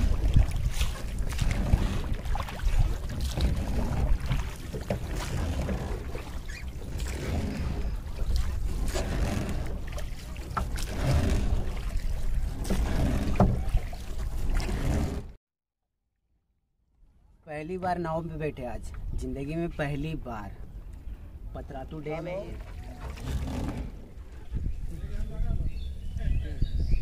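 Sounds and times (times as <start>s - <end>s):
wind on microphone: 0.0s - 10.0s, 23.0s - 27.0s
water splashing from rowing: 0.0s - 15.4s, 17.9s - 26.2s
oars knocking on wood: 0.1s - 15.3s.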